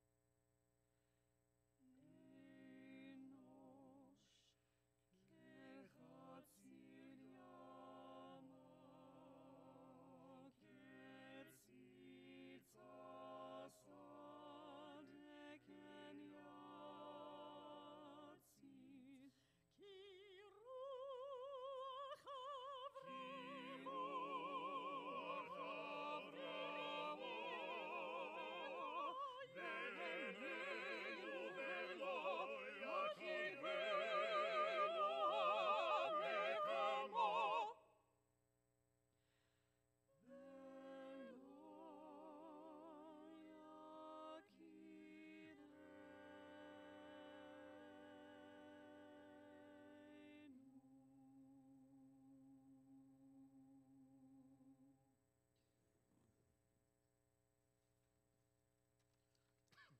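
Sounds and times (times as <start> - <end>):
vocal ensemble singing a cappella: 1.9 - 4.6, 5.2 - 37.9, 40.2 - 54.9.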